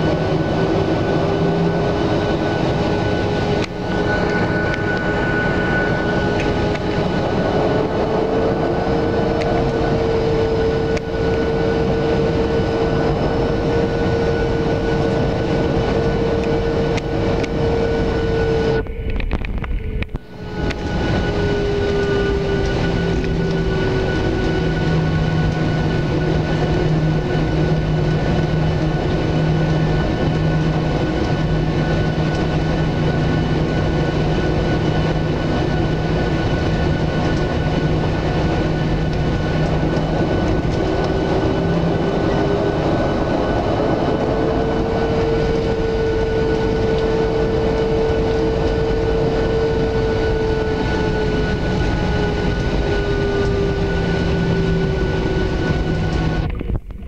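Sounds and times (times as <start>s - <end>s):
jet engines running: 0.0s - 57.0s
wheels rumbling: 0.0s - 57.0s.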